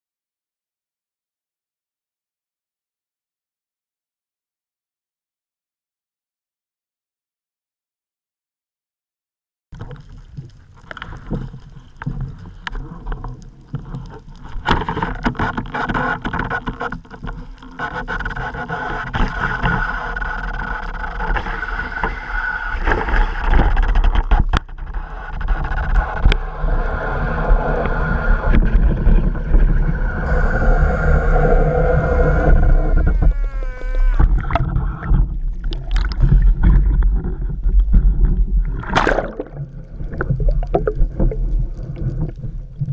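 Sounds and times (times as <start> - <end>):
underwater rushing rumble: 19.1 - 42.9.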